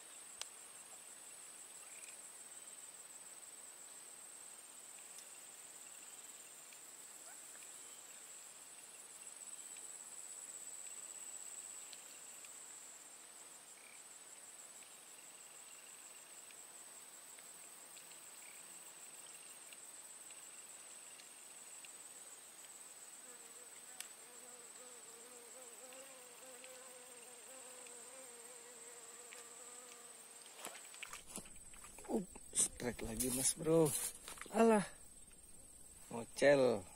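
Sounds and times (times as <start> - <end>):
insects trilling: 0.0 - 36.9
flying insect buzzing: 22.6 - 36.1.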